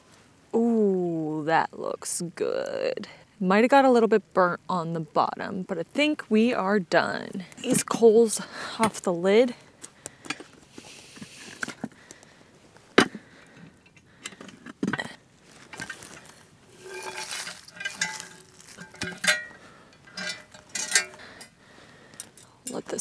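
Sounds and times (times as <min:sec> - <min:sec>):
charcoal clinking on iron lid: 0:15.7 - 0:21.5.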